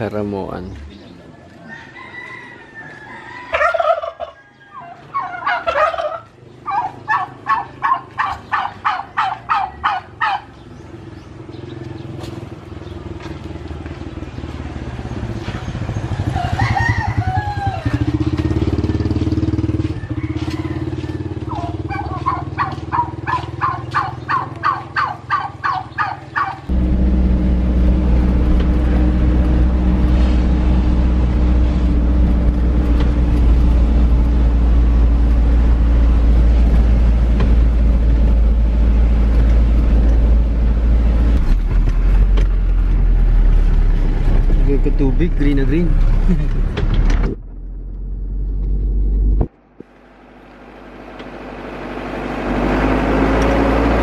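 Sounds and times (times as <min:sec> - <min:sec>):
turkeys calling: 0:00.7 - 0:12.4, 0:19.8 - 0:26.7
low engine hum: 0:05.9 - 0:54.0
car engine running: 0:26.3 - 0:54.0.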